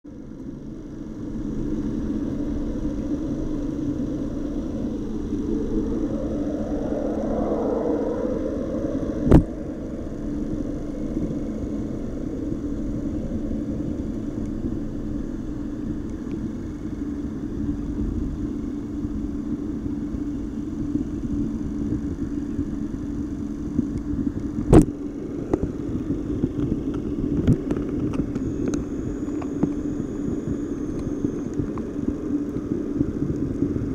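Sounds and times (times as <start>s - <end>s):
fish tank pump humming: 0.8s - 22.6s.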